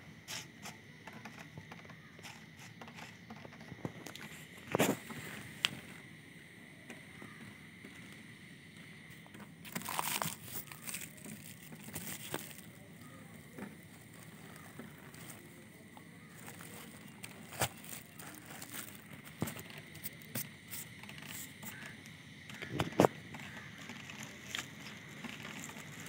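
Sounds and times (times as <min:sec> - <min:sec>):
shredded paper rustling: 0:09.7 - 0:13.2, 0:16.2 - 0:20.5
plastic wrapping crackling: 0:09.7 - 0:21.8.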